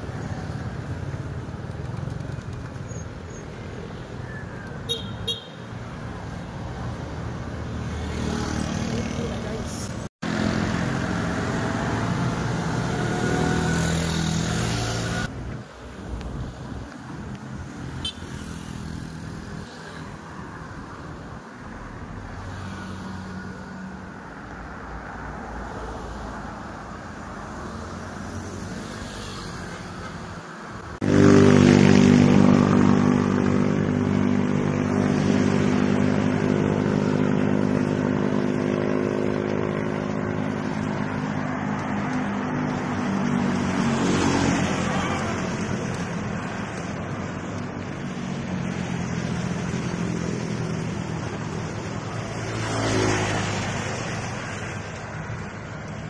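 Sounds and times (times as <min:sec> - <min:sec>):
road traffic noise: 0:00.0 - 0:56.0
motor vehicle engine running: 0:32.5 - 0:43.6.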